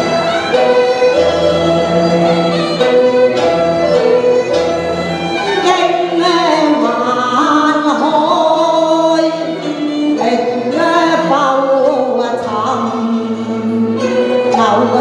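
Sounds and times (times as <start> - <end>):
instrumental accompaniment: 0.0 - 15.0
woman singing into microphone: 5.6 - 15.0.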